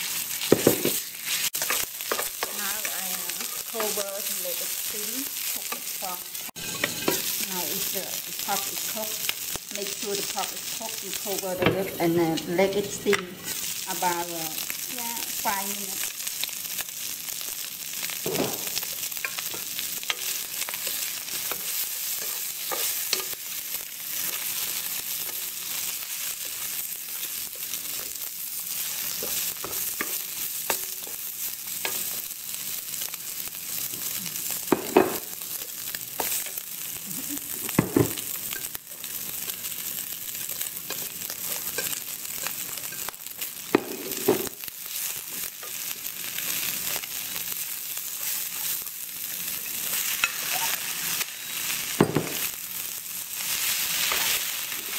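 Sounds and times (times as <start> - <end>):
food sizzling in a wok: 0.0 - 54.9
spatula scraping and knocking pan: 6.6 - 7.4.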